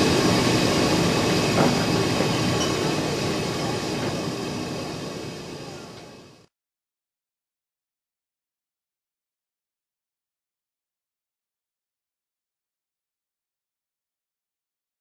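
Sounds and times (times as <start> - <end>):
steam locomotive rumbling: 0.0 - 6.5.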